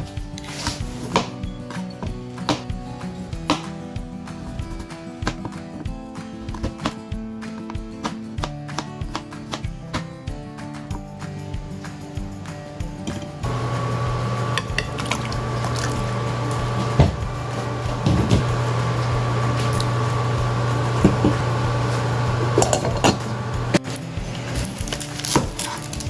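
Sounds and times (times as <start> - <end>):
induction cooktop humming: 13.4 - 25.7
pan and cookware clinking: 14.4 - 16.2, 22.4 - 23.4
glass pot lid clinking: 14.5 - 15.4, 22.5 - 23.3.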